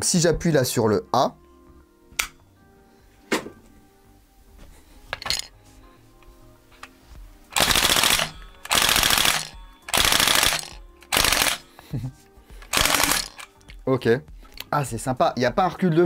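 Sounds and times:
gun handling clicks: 7.5 - 11.6, 12.6 - 13.8
airsoft gun full-auto bursts: 7.6 - 11.6, 12.7 - 13.4.

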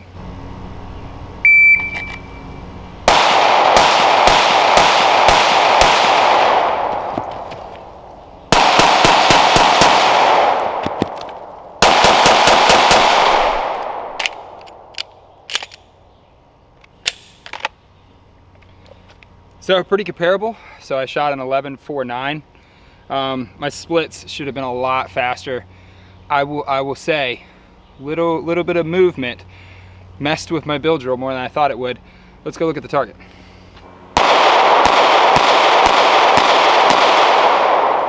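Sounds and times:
shot timer beep: 1.4 - 2.6
pistol shots with echo: 3.1 - 7.4, 8.5 - 11.1, 11.8 - 14.9, 34.2 - 38.0.

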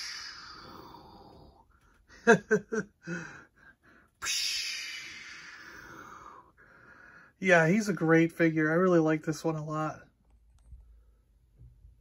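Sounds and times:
long hissing whoosh from mouth: 0.0 - 1.5, 4.2 - 6.5
man making chirpy mouth sounds: 4.2 - 5.6.

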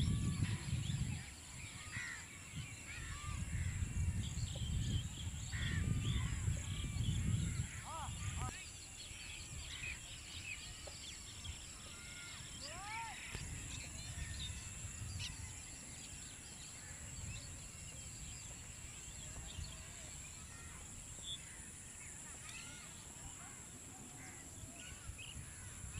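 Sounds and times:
wind rumble on microphone: 0.0 - 8.6, 12.6 - 21.6, 24.5 - 25.9
small birds chirping: 0.0 - 25.9.

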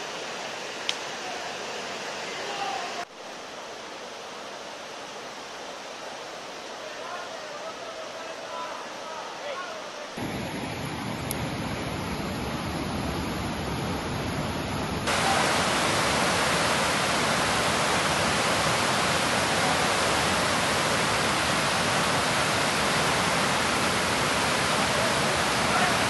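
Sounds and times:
rushing whitewater rapids: 13.6 - 26.0.

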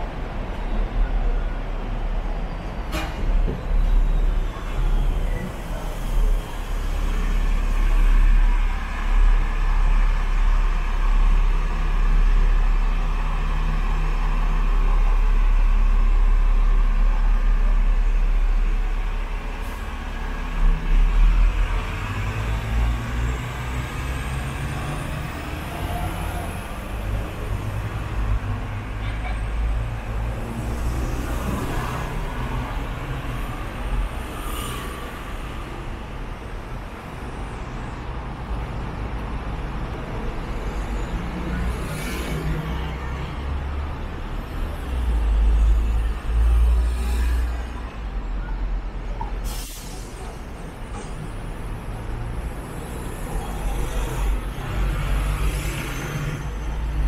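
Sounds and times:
tram wheels rumbling on rails: 0.0 - 37.4, 50.0 - 57.0
street traffic: 0.0 - 57.0.

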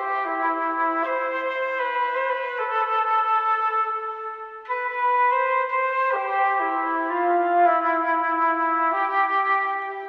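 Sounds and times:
flute playing hymn melody: 0.0 - 10.0.

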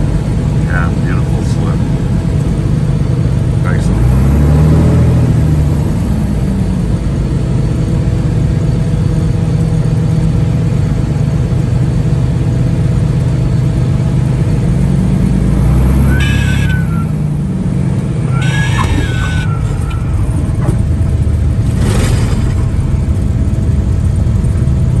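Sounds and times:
airplane engine and propeller: 0.0 - 25.0
tyres squeaking: 16.1 - 17.2, 18.2 - 21.0.

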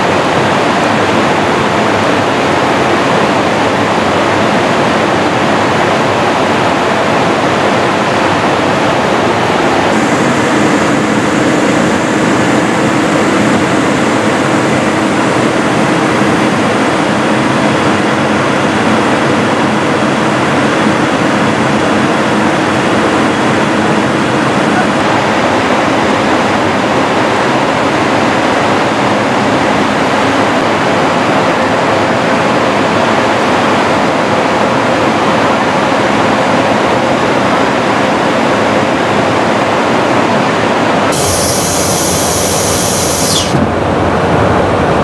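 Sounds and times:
faint hum: 0.0 - 26.2, 41.1 - 45.0
rushing airflow and jet engine: 0.0 - 45.0.

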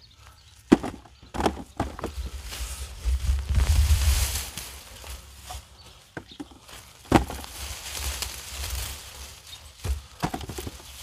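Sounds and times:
hands digging in soil: 2.0 - 5.8, 6.5 - 11.0.

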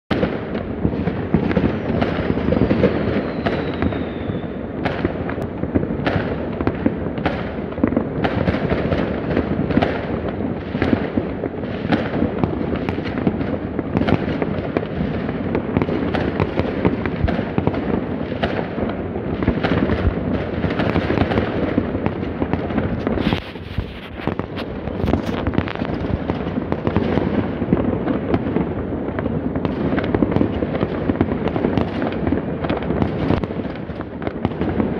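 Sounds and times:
fireworks and firecrackers banging: 0.1 - 34.9
falling whistle: 2.3 - 4.6.

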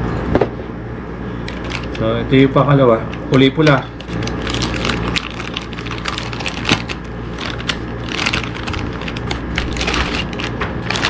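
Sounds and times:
plastic bag crinkling: 1.4 - 2.2, 3.0 - 11.0.

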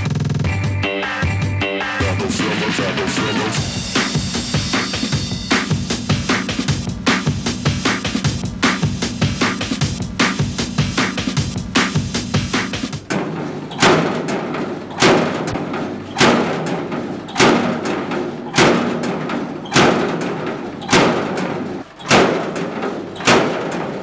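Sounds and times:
heavy thud ringing out: 11.8 - 24.0.

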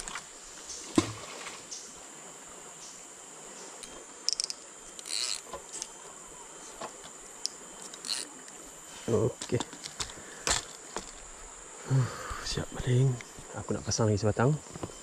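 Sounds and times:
high insect drone: 0.0 - 15.0
fishing reel clicks: 3.8 - 5.9, 7.4 - 8.3.

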